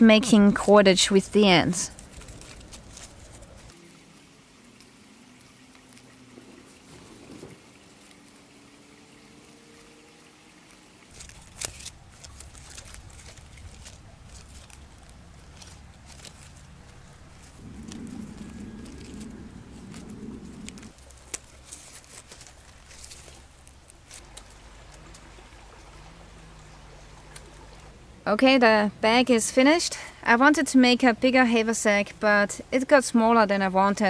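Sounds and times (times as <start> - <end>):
leaves rustling and crackling: 0.5 - 28.3
low wavering drone: 17.0 - 20.9.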